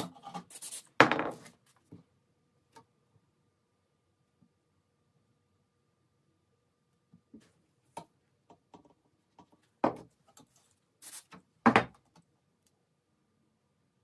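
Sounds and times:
spray can hiss: 0.5 - 1.0, 11.0 - 11.4.

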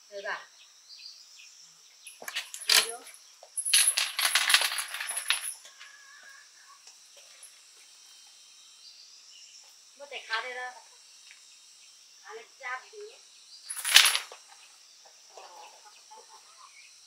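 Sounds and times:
high-pitched insect drone: 0.0 - 15.7
small hard objects clinking: 2.1 - 5.8, 13.7 - 14.4.

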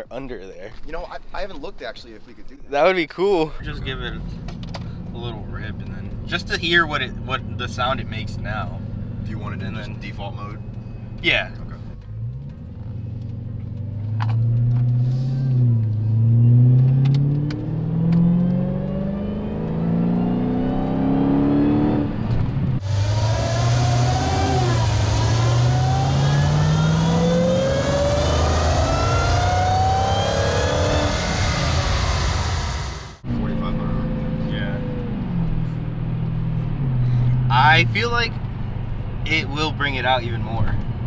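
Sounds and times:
car engine accelerating through gears: 3.8 - 41.0
supercharger whine: 4.0 - 37.6.

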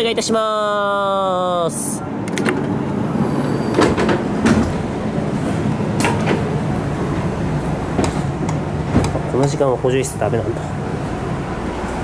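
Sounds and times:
station and train noise: 0.0 - 12.0
sliding door opening: 2.3 - 9.6
sharp door clunks: 3.7 - 4.9.

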